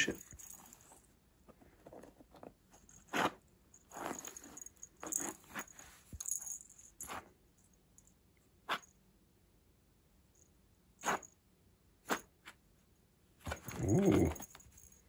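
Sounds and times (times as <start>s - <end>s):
cat claws scratching rug: 0.2s - 7.4s.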